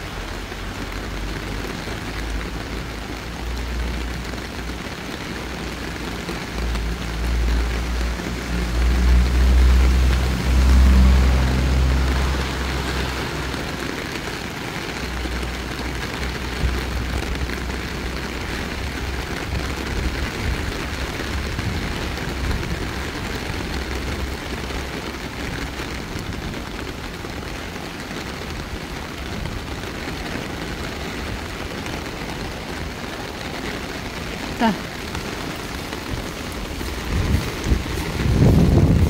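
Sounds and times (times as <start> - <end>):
heavy rain on water and pavement: 0.0 - 39.0
deep rumble: 7.2 - 14.1, 35.8 - 39.0.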